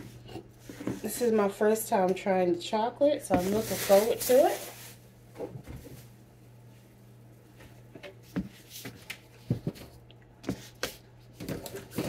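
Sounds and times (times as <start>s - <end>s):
steady low hum: 0.0s - 12.0s
groceries knocking and rustling: 3.3s - 6.1s, 7.6s - 12.0s.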